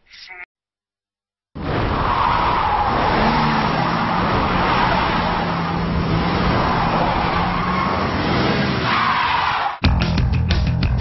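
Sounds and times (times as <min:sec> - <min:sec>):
tyre and road noise: 0:01.6 - 0:09.8.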